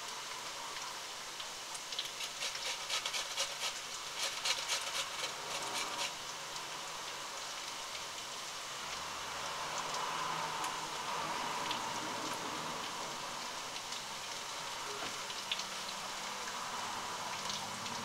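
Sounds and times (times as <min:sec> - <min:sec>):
frying pan sizzling: 0:01.3 - 0:18.0
potato rasping on grater: 0:02.0 - 0:06.2.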